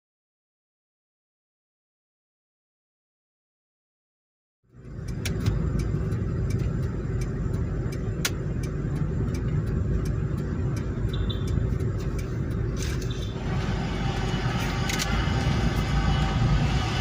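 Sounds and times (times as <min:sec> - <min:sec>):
low road rumble: 0:04.6 - 0:17.0
car engine from inside cabin: 0:04.7 - 0:17.0.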